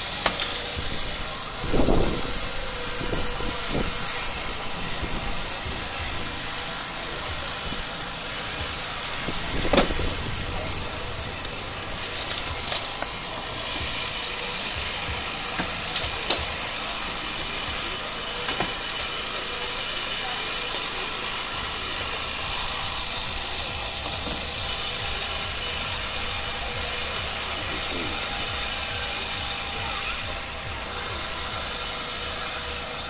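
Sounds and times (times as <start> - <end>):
sharp metallic clicks and cracks: 0.0 - 0.8, 11.4 - 17.8, 18.4 - 19.8
hydraulic power unit running: 0.0 - 33.0.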